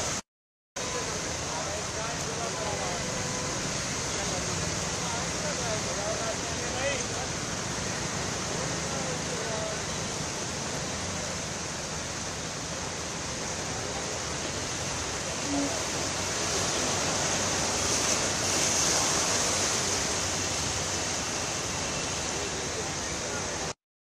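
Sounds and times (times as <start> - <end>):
heavy rain: 0.0 - 0.2, 0.8 - 23.8
vehicles splashing through floodwater: 0.8 - 23.8.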